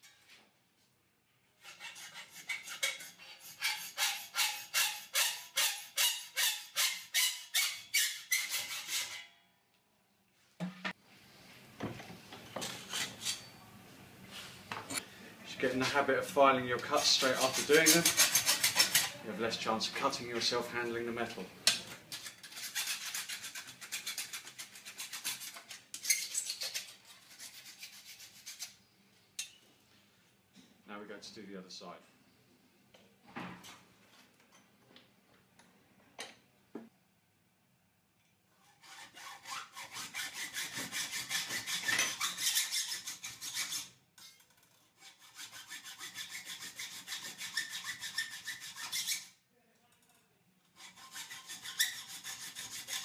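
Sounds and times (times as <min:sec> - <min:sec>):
hand file rasping on metal: 0:01.6 - 0:09.2, 0:16.9 - 0:19.2, 0:22.1 - 0:28.7, 0:38.6 - 0:49.4, 0:50.7 - 0:53.0
hacksaw cutting metal: 0:01.6 - 0:09.3, 0:16.9 - 0:19.2, 0:21.7 - 0:28.6, 0:38.6 - 0:49.3, 0:50.7 - 0:53.0.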